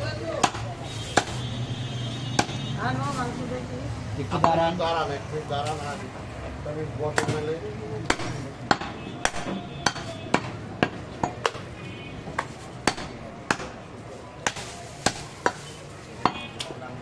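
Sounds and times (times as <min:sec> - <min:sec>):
cleaver chopping on wooden block: 0:00.4 - 0:01.4, 0:02.4 - 0:02.6, 0:08.0 - 0:11.7, 0:12.4 - 0:13.8, 0:14.4 - 0:15.6.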